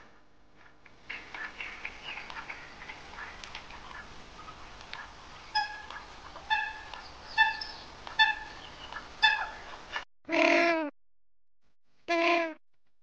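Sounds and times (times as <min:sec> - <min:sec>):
animal high-pitched calls: 0:05.5 - 0:08.6, 0:09.2 - 0:09.6.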